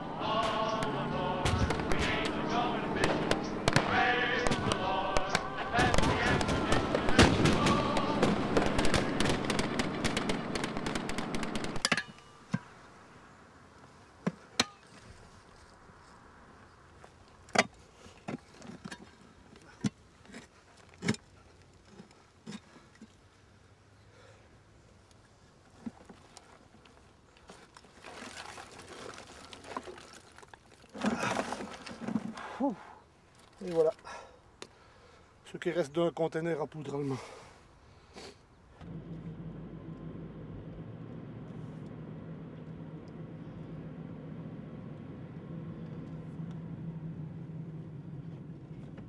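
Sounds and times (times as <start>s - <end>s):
rapid gunfire crackle: 0.4s - 11.8s
soil crumbling and crunching: 25.6s - 32.6s.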